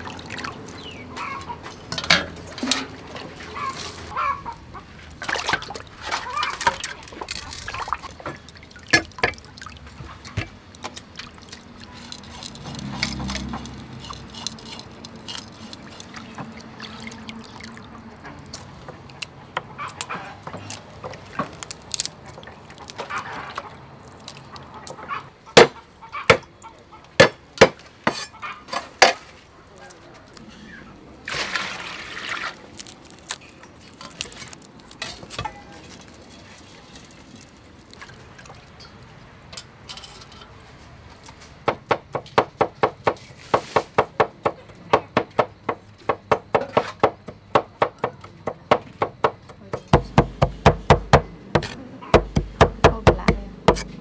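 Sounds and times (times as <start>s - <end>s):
garlic skins crackling: 9.4s - 25.3s, 28.7s - 38.4s
cleaver chopping on wooden board: 25.6s - 26.4s, 41.7s - 54.0s.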